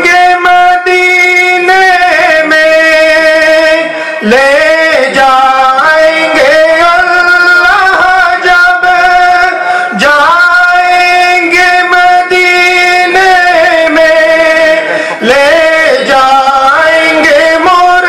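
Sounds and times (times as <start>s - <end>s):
man singing devotional chant: 0.0s - 18.0s.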